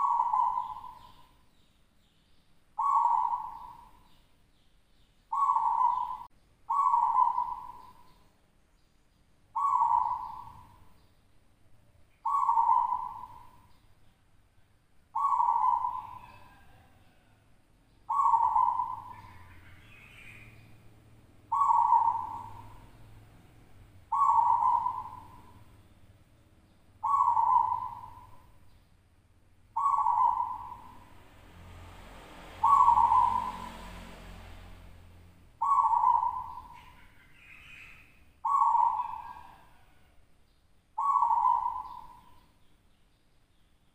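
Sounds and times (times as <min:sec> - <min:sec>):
dove cooing: 0:00.0 - 0:01.4, 0:02.8 - 0:04.0, 0:05.3 - 0:08.1, 0:09.6 - 0:10.9, 0:12.2 - 0:13.7, 0:15.1 - 0:17.4, 0:18.1 - 0:20.8, 0:21.4 - 0:25.8, 0:26.4 - 0:28.6, 0:29.8 - 0:31.2, 0:32.5 - 0:34.2, 0:35.6 - 0:40.2, 0:41.0 - 0:42.5.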